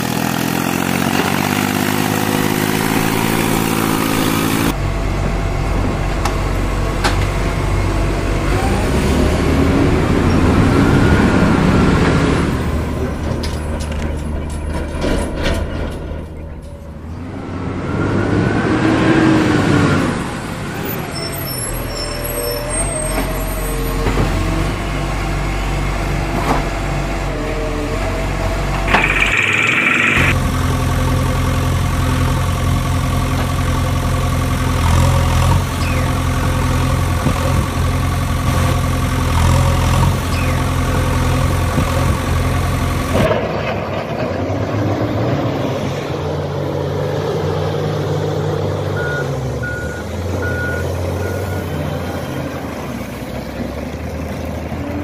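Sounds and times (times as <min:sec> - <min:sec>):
large truck engine running: 0:00.0 - 0:55.0.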